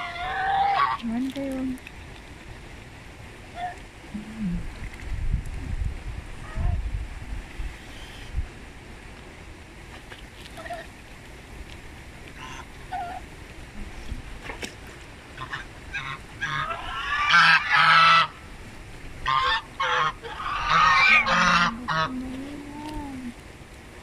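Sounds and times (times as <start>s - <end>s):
geese honking: 0.0s - 1.0s, 12.4s - 13.2s, 15.4s - 18.4s, 19.2s - 22.2s.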